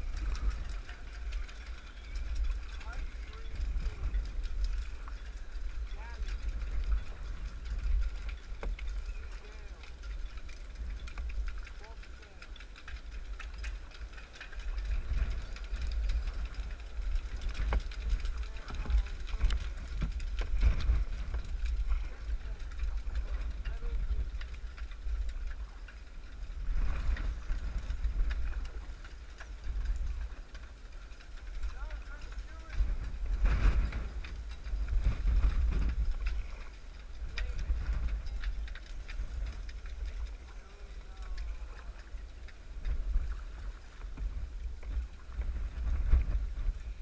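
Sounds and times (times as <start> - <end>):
wind buffeting microphone: 0.0 - 47.0.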